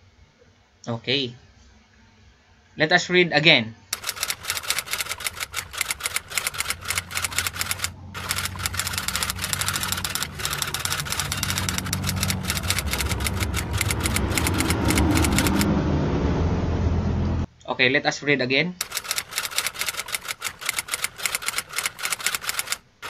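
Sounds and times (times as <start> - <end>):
rapid typewriter clicking: 4.0 - 15.7, 18.8 - 23.0.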